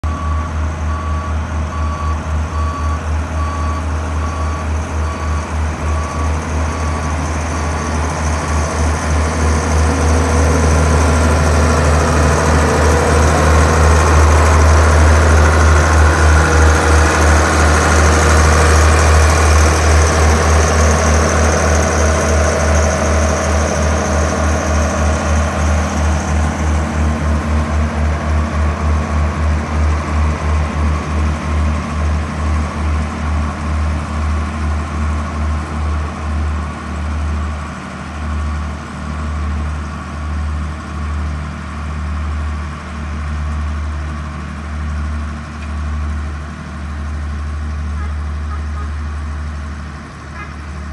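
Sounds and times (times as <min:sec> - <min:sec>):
reverse warning beeper: 0:00.0 - 0:21.6
soil compactor diesel engine throbbing: 0:00.0 - 0:50.9.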